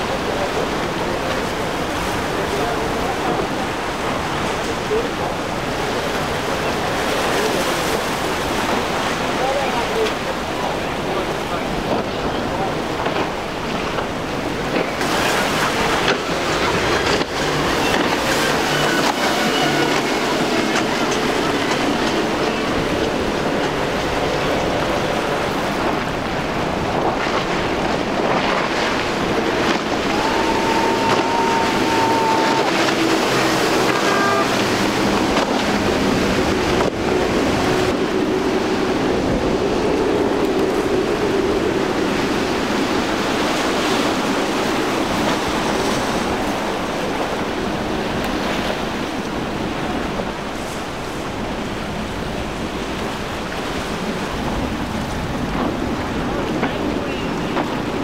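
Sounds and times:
spray and waves hissing: 0.0 - 58.0
wind buffeting microphone: 0.0 - 58.0
outboard motors droning: 0.2 - 58.0
steady high tone: 30.1 - 34.8.

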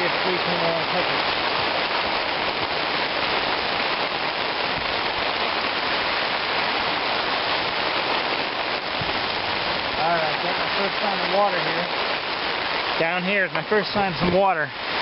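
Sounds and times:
hose spray pattering on tarp: 7.3 - 11.9.

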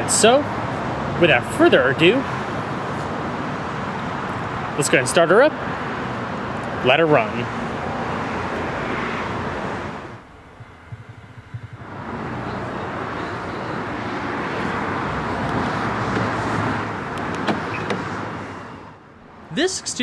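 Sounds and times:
sports car engine idling: 10.1 - 13.9.

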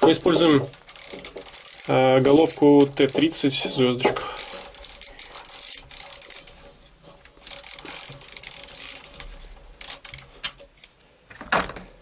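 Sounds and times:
hand ratchet clicking: 0.0 - 3.4, 4.4 - 6.6, 7.4 - 9.2, 9.8 - 11.0.

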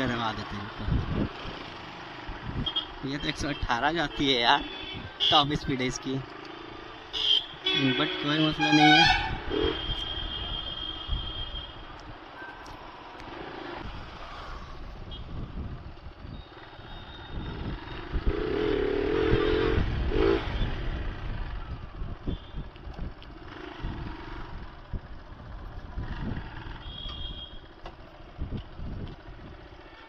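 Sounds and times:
motorcycle engine running: 6.2 - 30.0.

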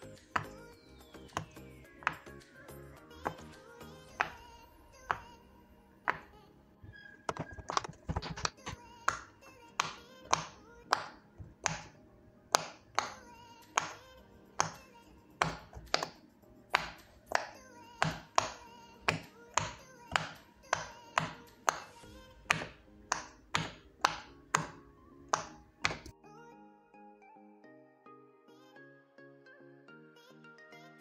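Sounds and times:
faint background music: 0.0 - 31.0
pop it fidget toy popping: 4.1 - 4.5, 7.3 - 14.0, 15.4 - 26.1.

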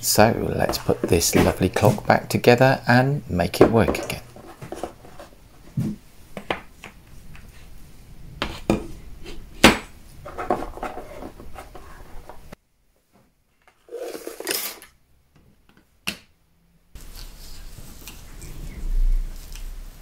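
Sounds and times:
rustling: 3.8 - 12.6, 17.0 - 20.0.

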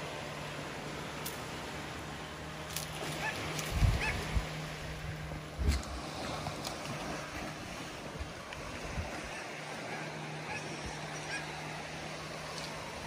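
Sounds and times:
distant motorboat hum: 0.0 - 13.0
gentle surf: 0.0 - 13.0
wind: 0.0 - 13.0
faint seabird calls: 3.2 - 4.3, 9.1 - 12.6.

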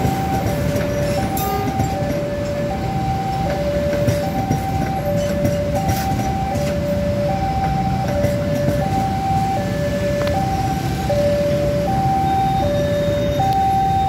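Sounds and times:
train wheel clacks: 0.0 - 9.6
level crossing two-tone alarm: 0.0 - 14.0
train carriages rumbling: 0.0 - 14.0.

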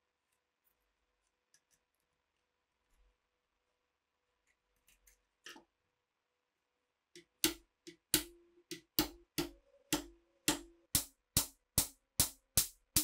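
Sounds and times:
hammer striking metal punch: 7.2 - 13.0.

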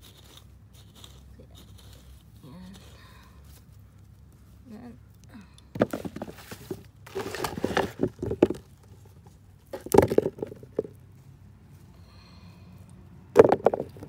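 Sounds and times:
earth scraping and rustling: 0.0 - 5.0, 5.7 - 11.9, 13.3 - 14.0
potatoes knocking into plastic basin: 5.7 - 8.7, 9.7 - 11.0, 13.4 - 14.0.

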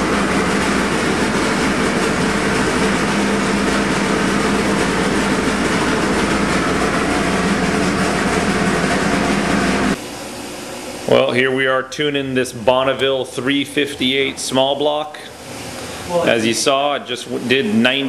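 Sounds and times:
race engine droning steadily: 0.0 - 10.0.

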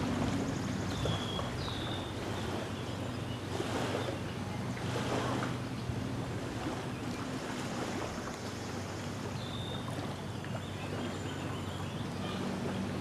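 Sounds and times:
low steady hum: 0.0 - 13.0
waves lapping on sandy shore: 0.0 - 13.0
wind: 0.0 - 13.0.

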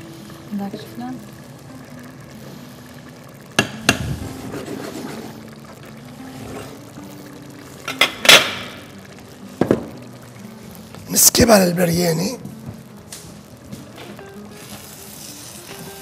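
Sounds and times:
pot clanking on metal grates: 7.8 - 8.7.

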